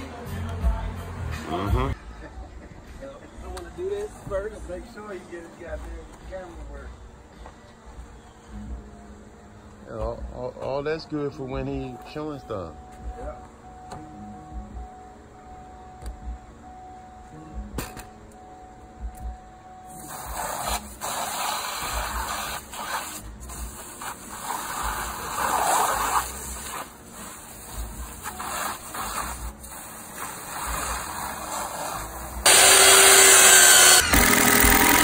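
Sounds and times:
pressure washer spraying: 19.9 - 35.0.

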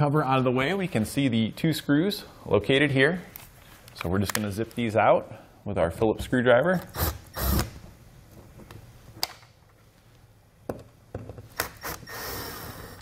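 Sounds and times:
cordless drill motor: 6.9 - 7.7, 11.7 - 13.0.

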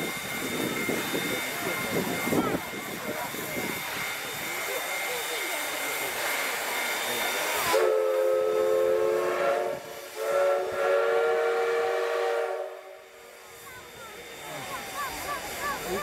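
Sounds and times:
steam hissing: 0.0 - 16.0
steam whistle blasts: 3.7 - 14.4.

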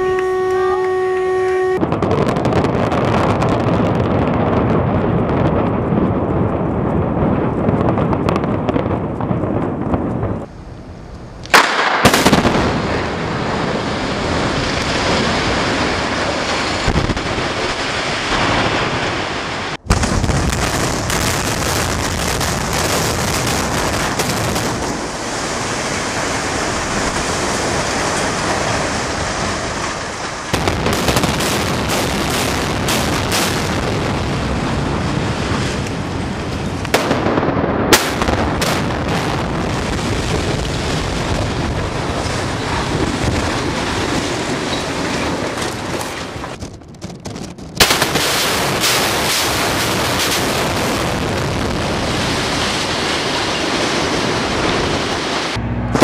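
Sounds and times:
rumble of collapsing building: 1.8 - 56.0
demolition charges cracking: 11.5 - 56.0.

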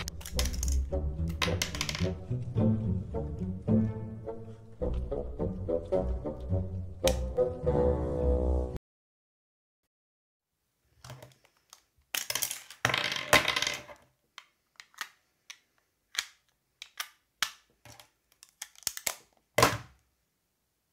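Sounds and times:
plastic case and batteries rattling: 0.0 - 1.8.

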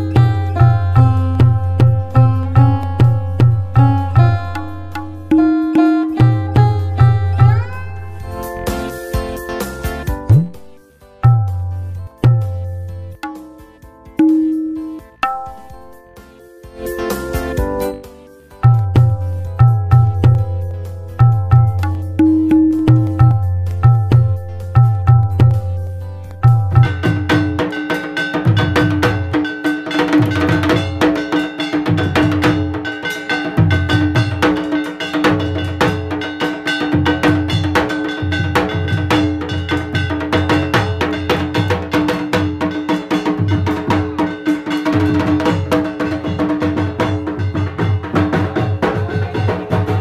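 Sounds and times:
steady held tone: 0.0 - 13.6, 14.2 - 27.4
drums beaten with sticks: 0.0 - 50.0
metal percussion clanging: 0.0 - 50.0.

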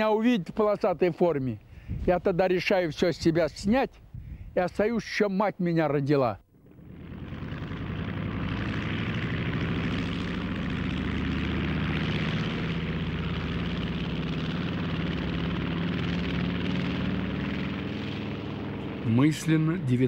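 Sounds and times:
propeller engines droning: 6.5 - 20.0.

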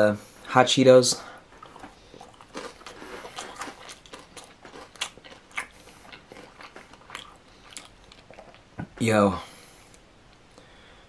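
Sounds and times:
person chewing crunchy food: 1.4 - 8.8.

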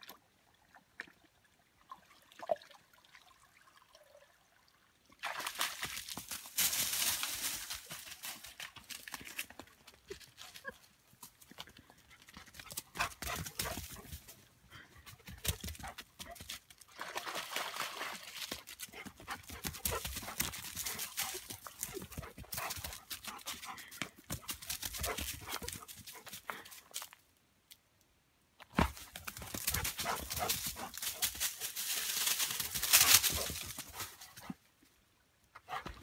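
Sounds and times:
footsteps crunching on leaves: 6.2 - 9.3, 30.4 - 33.5.

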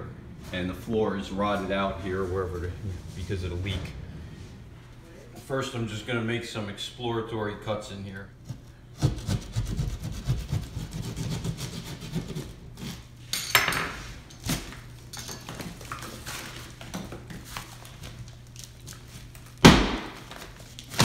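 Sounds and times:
blade sawing into wall panel: 9.0 - 13.0.

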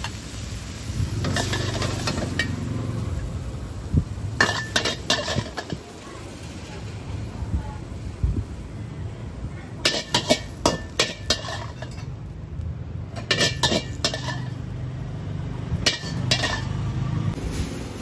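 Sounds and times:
spatula clanking on wok: 1.2 - 2.7, 4.4 - 5.9, 9.8 - 12.2, 13.1 - 14.6, 15.8 - 16.8.

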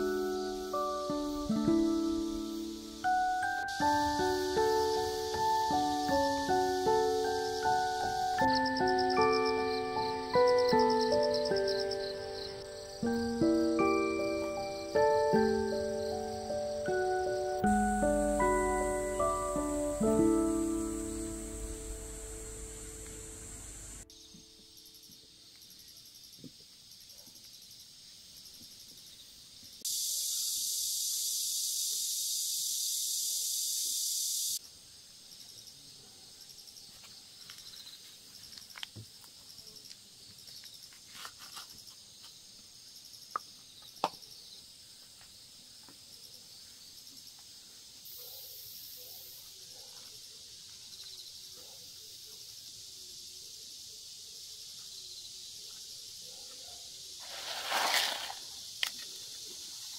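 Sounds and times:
loud dense insect buzz: 0.0 - 25.8, 29.8 - 34.6, 57.1 - 59.9
insects chirring: 0.0 - 59.9.

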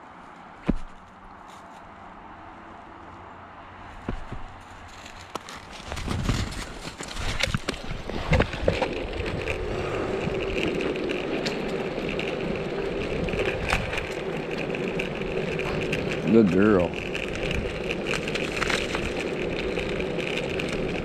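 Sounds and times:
wheels rolling on asphalt: 0.0 - 21.0
board knocks and scrapes: 0.6 - 1.7, 5.3 - 9.6.

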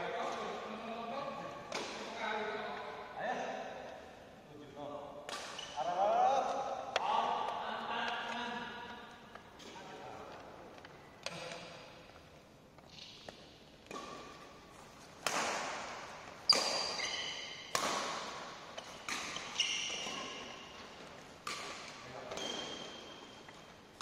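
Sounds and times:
racket hitting shuttlecock: 1.7 - 2.1, 5.2 - 5.8, 12.9 - 24.0
shoes squeaking on court: 5.4 - 5.9, 12.8 - 15.2, 16.4 - 17.8, 18.7 - 24.0.

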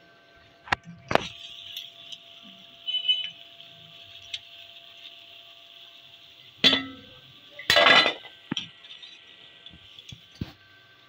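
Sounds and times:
oil sizzling: 1.0 - 11.0
wire skimmer clanking on pan: 6.6 - 8.7.

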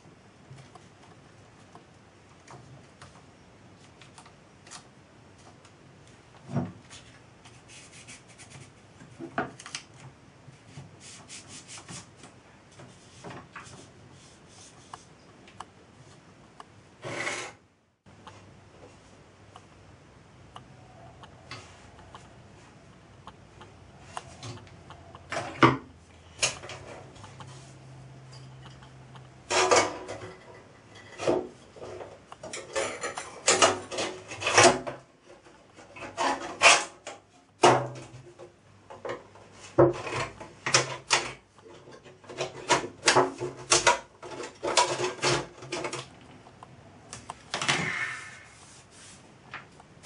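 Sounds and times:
hands rubbing paper tape: 7.4 - 8.8, 11.0 - 12.1, 48.2 - 49.3.

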